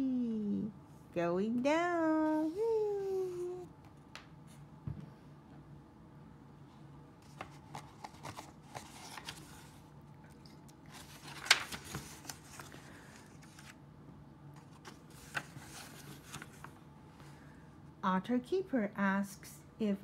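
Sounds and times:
book pages rustling and flipping: 0:07.2 - 0:13.8, 0:14.6 - 0:16.8.

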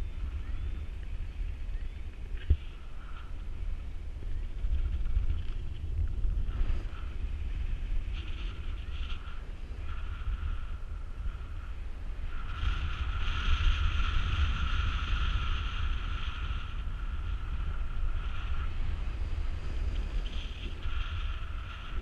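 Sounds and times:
wind buffeting microphone: 0:00.0 - 0:22.0
wind whistling: 0:00.0 - 0:22.0.

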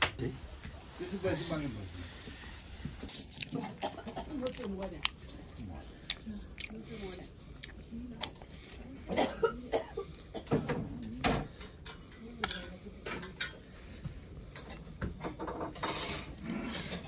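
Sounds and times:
dishes and cutlery clinking: 0:09.1 - 0:17.0.

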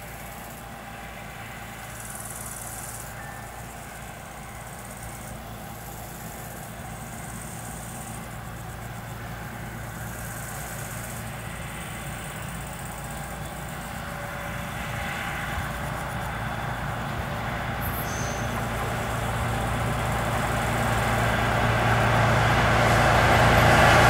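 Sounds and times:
diesel train engine drone: 0:00.0 - 0:24.0.

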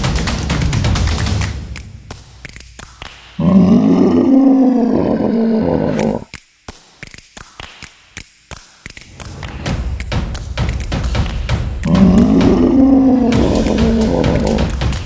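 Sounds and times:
dinosaur roar: 0:03.4 - 0:06.3, 0:11.8 - 0:14.7.

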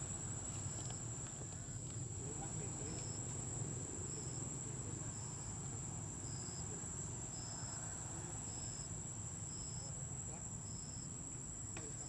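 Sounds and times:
insects trilling: 0:00.0 - 0:12.0.

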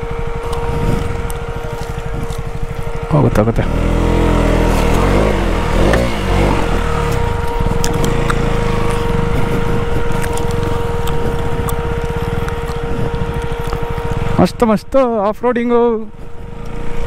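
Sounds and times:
motorcycle engine revving: 0:00.0 - 0:17.0
sharp ticks: 0:07.0 - 0:14.4.

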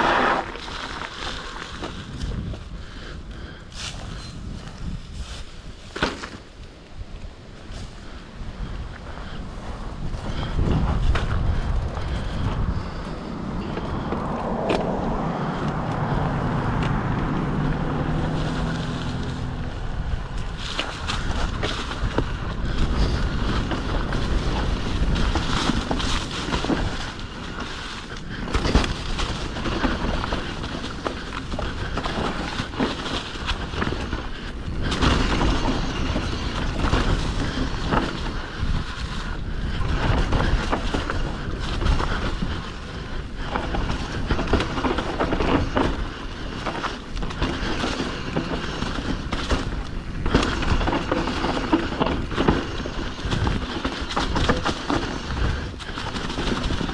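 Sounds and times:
bike knocks and rattles: 0:00.0 - 0:56.9
tyres rumbling over dirt and rocks: 0:00.0 - 0:56.9.

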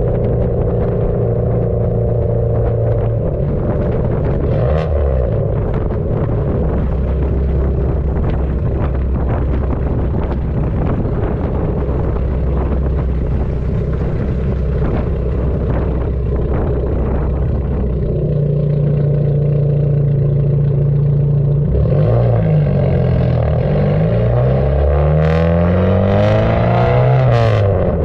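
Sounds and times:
car exhaust drone: 0:00.0 - 0:28.0
road noise: 0:00.0 - 0:28.0.

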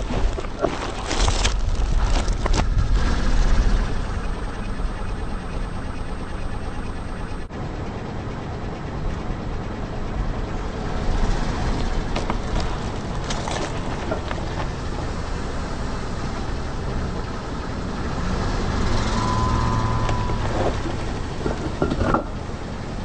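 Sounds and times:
spiky husk cracking: 0:00.0 - 0:04.1
car engine running low: 0:00.0 - 0:23.0
steady whine: 0:00.0 - 0:23.0.

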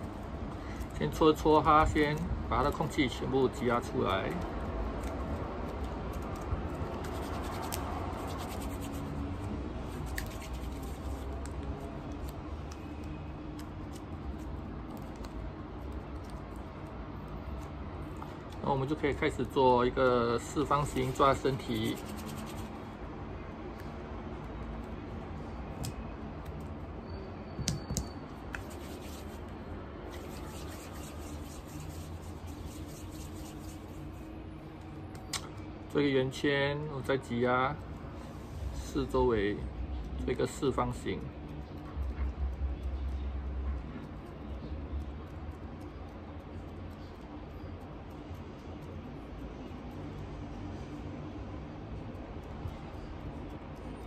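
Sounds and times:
hands rubbing soft clay: 0:00.0 - 0:23.0, 0:28.0 - 0:35.5
low background hum: 0:00.0 - 0:54.0.

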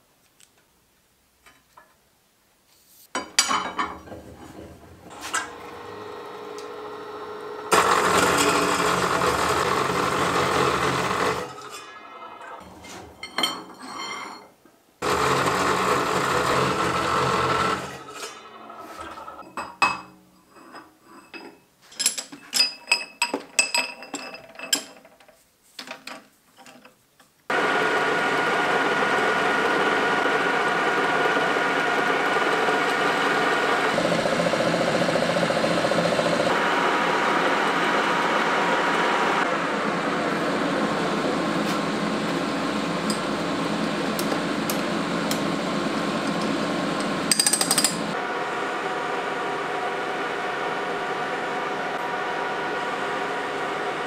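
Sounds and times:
metal lathe running: 0:05.4 - 0:12.6, 0:15.0 - 0:19.4, 0:27.5 - 0:39.5.

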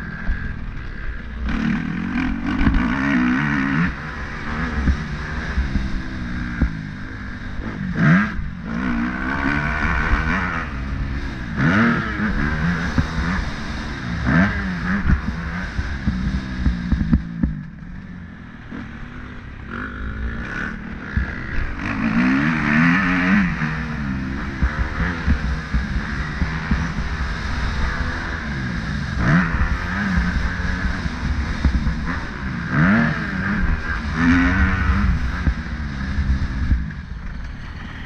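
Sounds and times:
motorcycle engine revving: 0:00.0 - 0:38.0
engine clatter: 0:36.4 - 0:38.0.

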